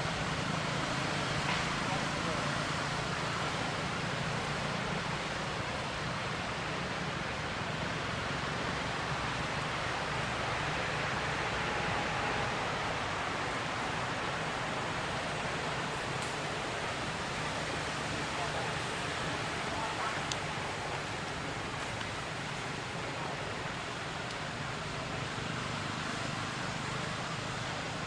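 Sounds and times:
steady outdoor hiss: 0:00.0 - 0:28.0.

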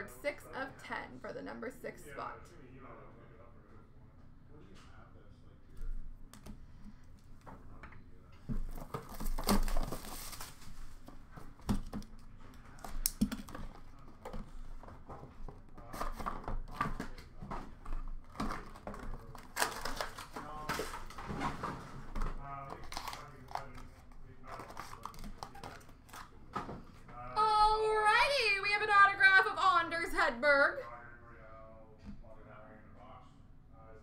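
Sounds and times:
plastic wrap crinkling: 0:08.6 - 0:13.6, 0:18.1 - 0:21.3, 0:22.2 - 0:26.5.

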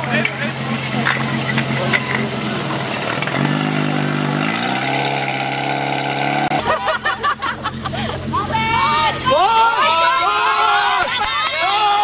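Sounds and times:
voices: 0:00.0 - 0:04.0, 0:06.6 - 0:12.0
pump engine running hard: 0:00.0 - 0:09.6.

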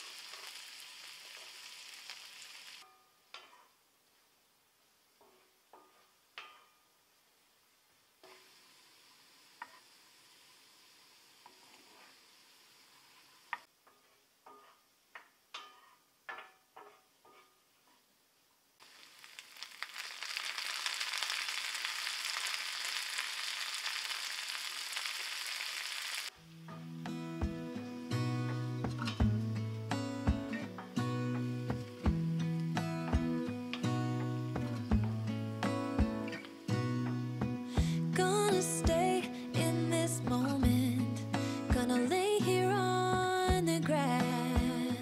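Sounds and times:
food sizzling in frying pan: 0:00.0 - 0:02.8, 0:08.2 - 0:13.7, 0:18.8 - 0:26.4
spatula scraping a pan: 0:13.1 - 0:14.9, 0:16.8 - 0:17.6.

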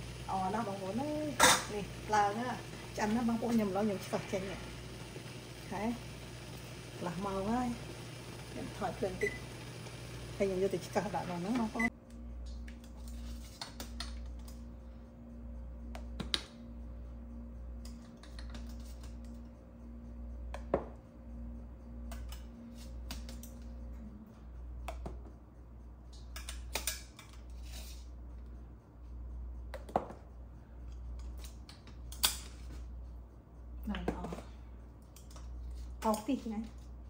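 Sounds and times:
steady low hum: 0:00.0 - 0:37.0
faint steady tone: 0:14.4 - 0:18.2.

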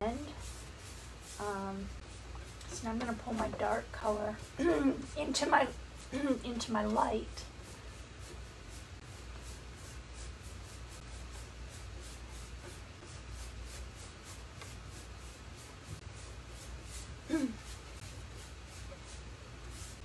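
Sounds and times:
paintbrush swishing on wood: 0:00.0 - 0:20.0
person humming: 0:17.3 - 0:17.7.

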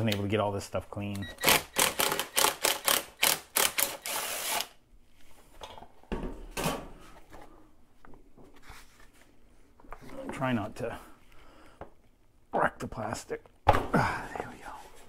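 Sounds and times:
cordless screwdriver rattling and whirring: 0:01.4 - 0:04.7.

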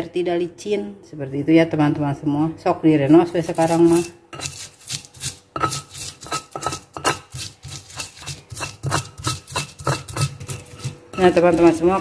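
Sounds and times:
stone pestle pounding in mortar: 0:03.6 - 0:12.0.

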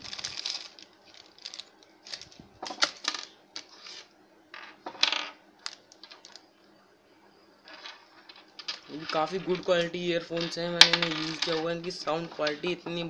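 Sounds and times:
plastic bag rustling: 0:00.0 - 0:04.1.

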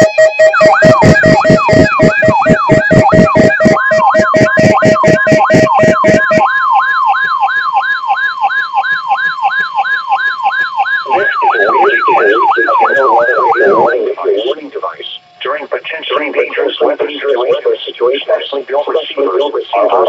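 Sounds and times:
steady tone: 0:00.0 - 0:07.8, 0:08.4 - 0:20.0
siren-like falling sweep: 0:00.0 - 0:14.0
rapid pulsed beeping: 0:00.0 - 0:20.0
broadcast voice: 0:11.1 - 0:20.0.

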